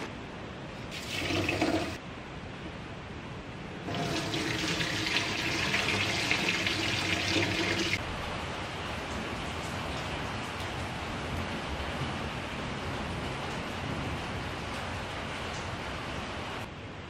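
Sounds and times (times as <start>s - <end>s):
water pouring into steel sink: 0.9s - 2.0s, 3.9s - 8.0s
water splashing in pot: 0.9s - 2.0s, 3.9s - 8.0s.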